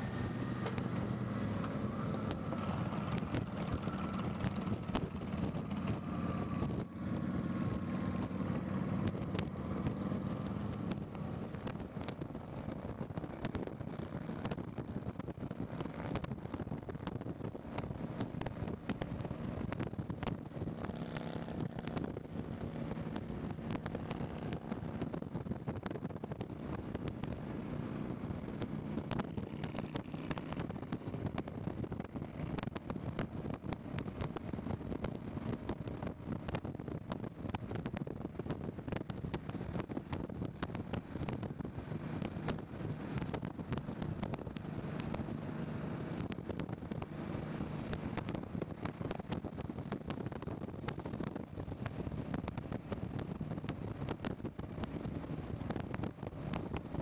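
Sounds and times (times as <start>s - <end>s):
motorcycle engine drone: 0.0s - 57.0s
wind buffeting microphone: 0.0s - 57.0s.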